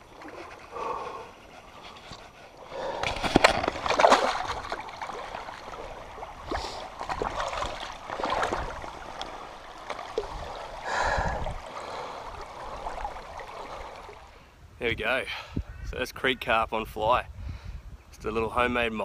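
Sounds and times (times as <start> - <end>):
creek trickling: 0.0 - 15.6
fish splashing in water: 2.7 - 14.3.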